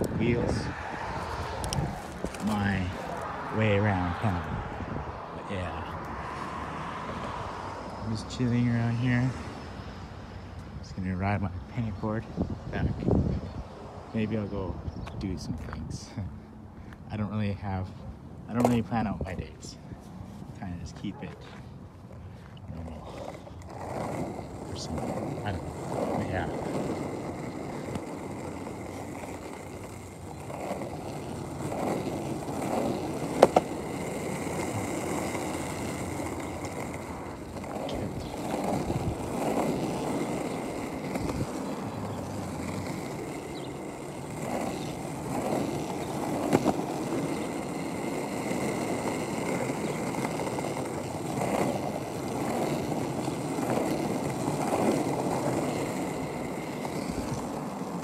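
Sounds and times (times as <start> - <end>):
skateboard clack: 0.0 - 3.4, 18.5 - 19.4, 23.1 - 58.0
skateboard wheels rolling on pavement: 0.0 - 58.0.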